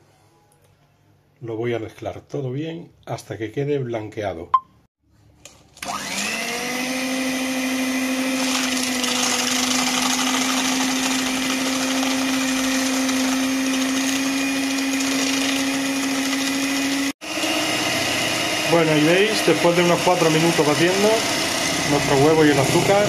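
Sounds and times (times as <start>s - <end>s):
electric hand mixer whirring: 5.8s - 23.0s.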